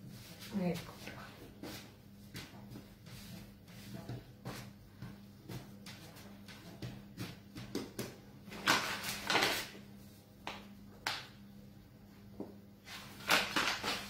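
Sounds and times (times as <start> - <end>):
dough knocking on wooden board: 4.0 - 8.2.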